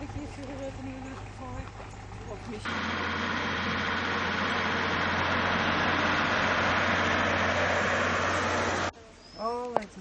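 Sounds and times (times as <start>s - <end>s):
heavy truck engine driving past: 2.7s - 8.9s.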